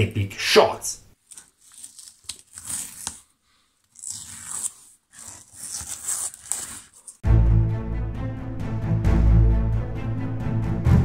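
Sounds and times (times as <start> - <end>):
rustling and crinkling handling: 1.2 - 7.2.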